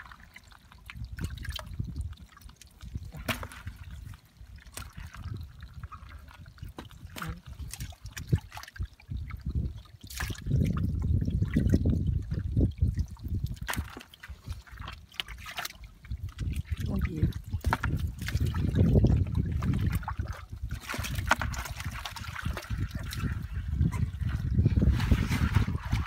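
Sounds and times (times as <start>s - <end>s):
hands sloshing through muddy water: 0.0s - 26.0s.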